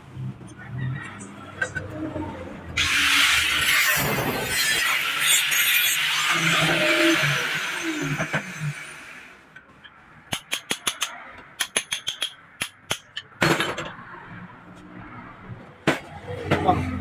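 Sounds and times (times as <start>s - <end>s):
metallic clicks and taps: 9.8s - 13.3s.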